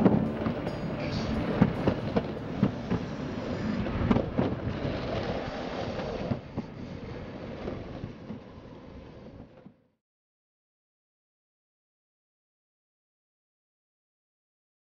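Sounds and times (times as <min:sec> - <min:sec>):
skateboard wheels rolling on concrete: 0:00.0 - 0:09.9.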